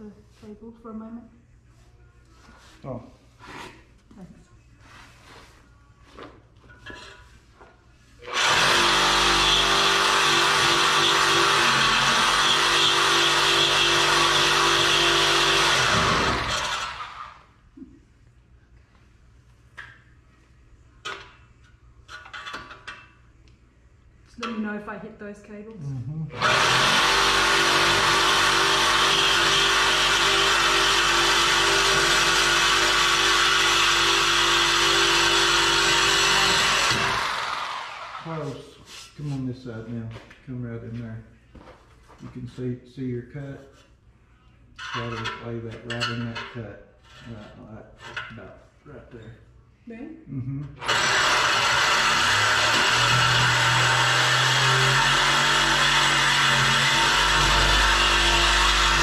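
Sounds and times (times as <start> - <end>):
reciprocating saw cutting steel pipe: 26.4 - 38.5, 50.8 - 59.0.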